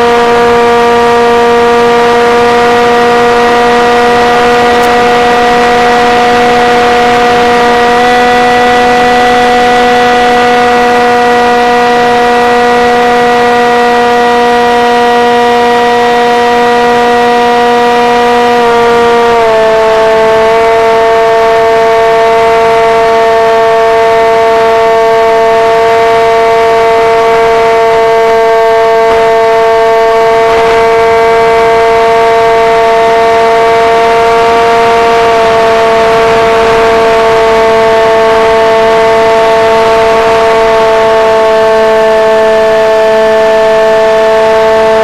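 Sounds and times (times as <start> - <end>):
model plane motor whining: 0.0 - 45.0
wind rush: 34.4 - 40.1.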